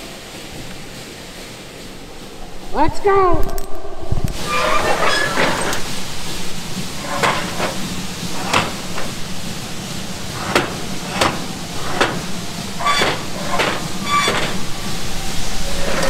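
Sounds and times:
steady low hum: 0.0s - 16.0s
metal rods clanking: 4.4s - 16.0s.

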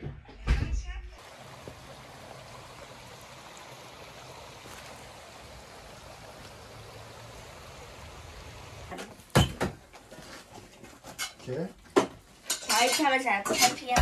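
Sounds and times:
running water: 1.1s - 14.0s
kitchenware clattering: 9.2s - 14.0s.

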